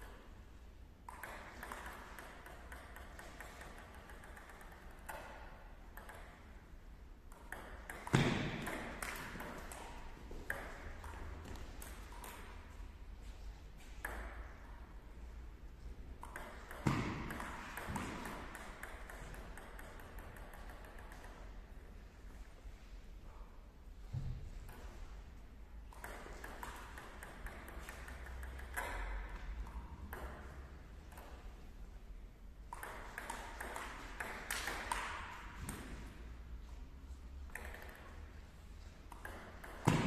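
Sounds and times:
table tennis ball clicking: 1.0 - 12.8, 13.9 - 14.7, 16.1 - 21.7, 25.9 - 31.7, 32.6 - 36.2, 37.5 - 38.4, 39.1 - 40.0.

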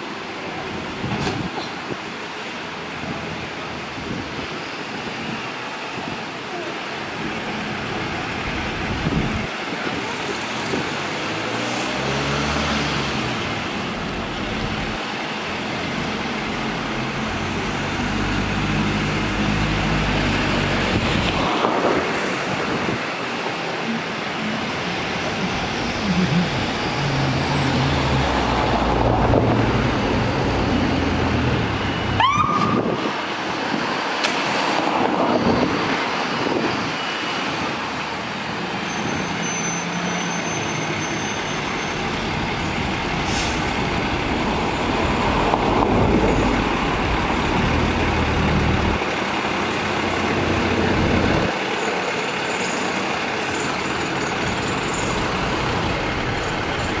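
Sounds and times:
diesel engine pulling away: 0.2 - 32.2, 32.8 - 57.0
siren whoop: 32.0 - 33.1
air brakes: 43.2 - 43.8.

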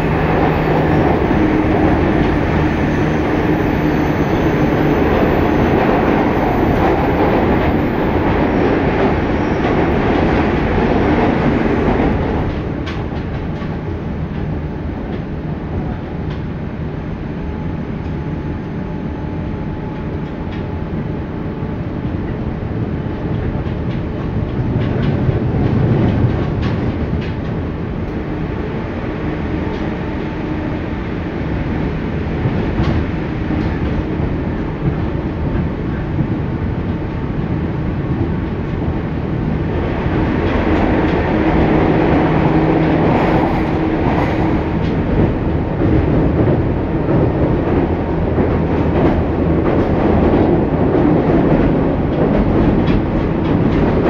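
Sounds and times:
train wheels rumbling on rail: 0.0 - 54.0
clacks over rail joints: 23.2 - 27.6, 40.4 - 54.0.

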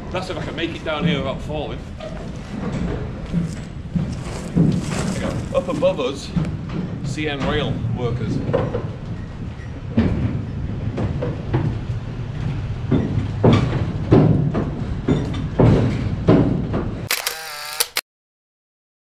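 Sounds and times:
sharp knocks and thuds: 2.5 - 7.7, 12.9 - 17.1.

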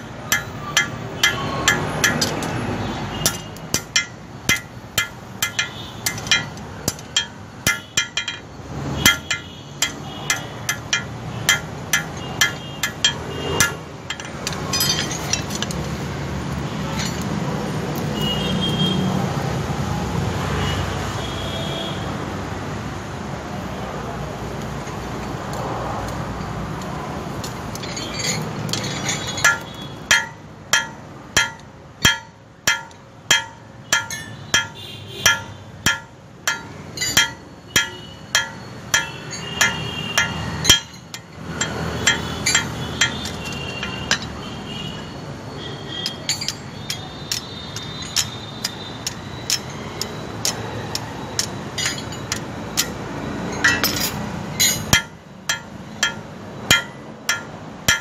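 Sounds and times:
hammer striking steel on anvil: 0.0 - 2.6, 3.2 - 8.4, 9.0 - 15.8, 27.4 - 44.4, 46.0 - 58.0.

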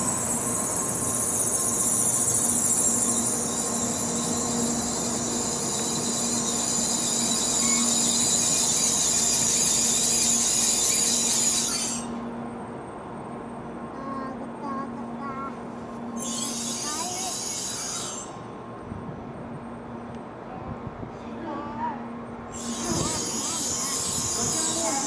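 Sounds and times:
train brakes squealing: 0.0 - 12.4, 16.1 - 18.6, 22.5 - 25.0.

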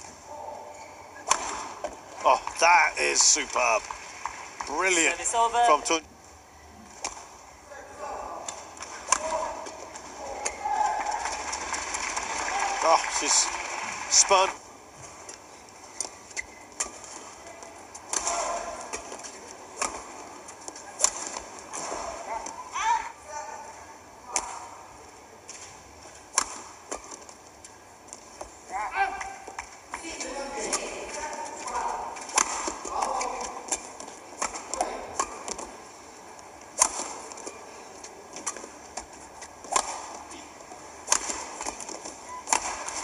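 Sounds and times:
arena hall hum: 0.0 - 43.0
racket hitting shuttlecock: 1.2 - 2.0, 8.4 - 9.8, 16.0 - 17.3, 18.0 - 22.6, 26.3 - 27.3, 30.6 - 35.8, 36.7 - 37.6, 38.4 - 43.0.

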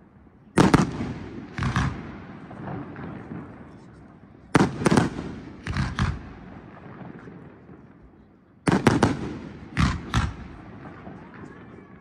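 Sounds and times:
fireworks bangs: 0.6 - 12.0.

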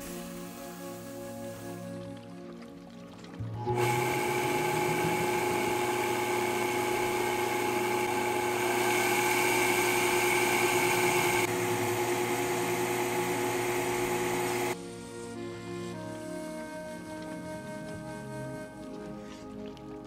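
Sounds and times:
blender motor whine: 3.6 - 14.8.

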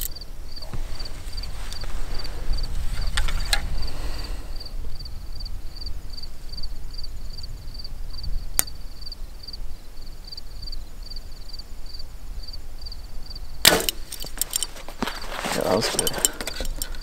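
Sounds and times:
insect chirping: 0.0 - 17.0.

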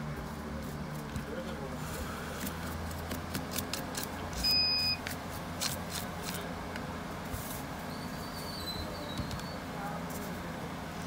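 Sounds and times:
short electronic beep: 4.4 - 5.0.

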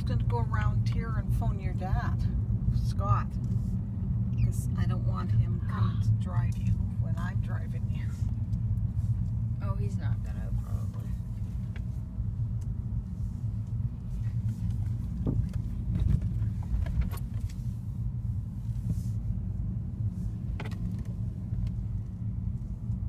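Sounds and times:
car cabin rumble: 0.0 - 23.0.

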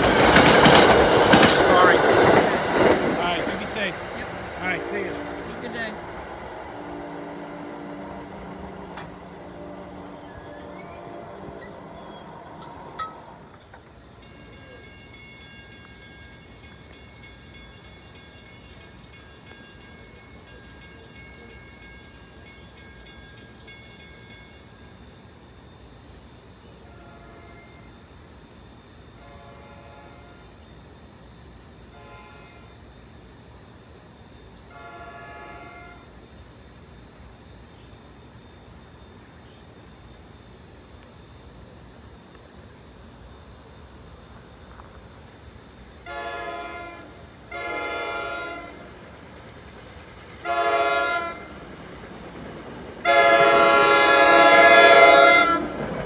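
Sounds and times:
insects chirping: 0.0 - 56.0
distant train horn blasts: 3.3 - 13.6, 26.8 - 28.0, 29.2 - 30.6, 31.9 - 32.9, 34.7 - 36.2, 46.0 - 49.0, 50.4 - 51.7, 53.0 - 56.0
crossing bell ringing: 7.9 - 25.1.

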